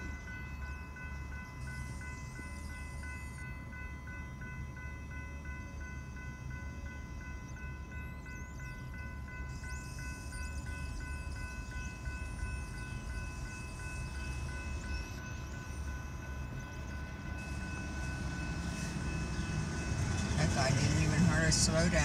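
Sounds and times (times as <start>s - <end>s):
railroad crossing bell ringing: 0.0s - 22.0s.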